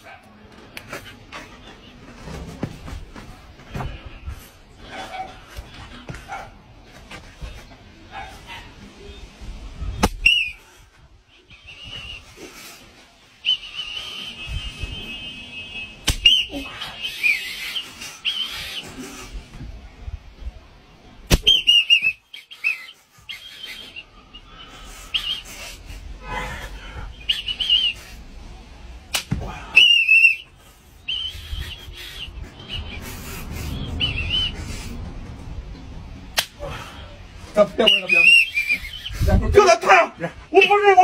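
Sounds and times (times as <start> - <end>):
shrill whistle blasts: 10.0 - 10.6, 13.4 - 18.8, 21.3 - 24.0, 27.2 - 28.2, 29.7 - 33.1, 33.8 - 34.6, 37.8 - 39.2.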